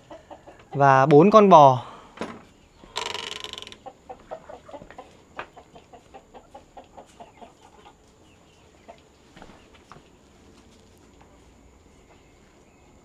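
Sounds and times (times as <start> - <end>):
chicken clucking: 0.0 - 0.9, 3.7 - 10.2.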